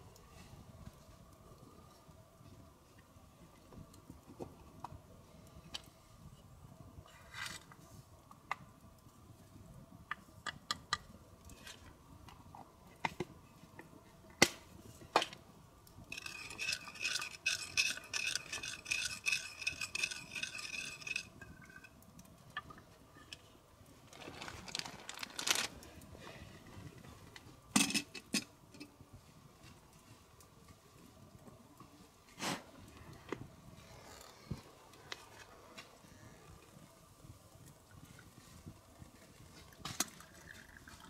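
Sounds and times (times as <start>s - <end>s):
spoon scraping in bowl: 16.2s - 21.9s.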